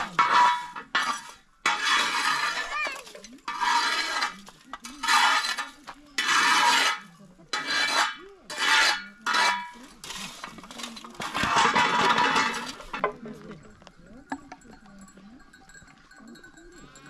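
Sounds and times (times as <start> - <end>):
scraping against metal dish: 0.0 - 13.2.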